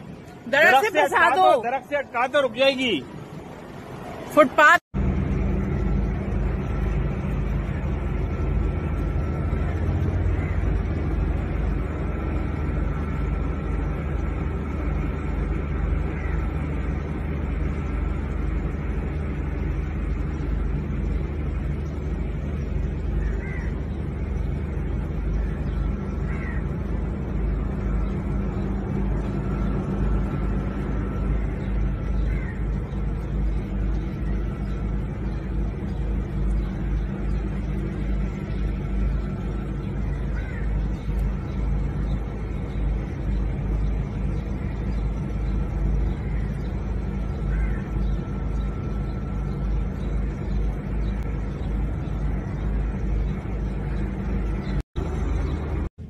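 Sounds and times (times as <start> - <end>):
low outdoor rumble: 0.0 - 56.0
faint crow caws: 10.0 - 11.4, 15.5 - 17.4, 22.9 - 24.3, 25.3 - 27.5, 31.0 - 34.8, 39.8 - 42.8, 44.3 - 48.6.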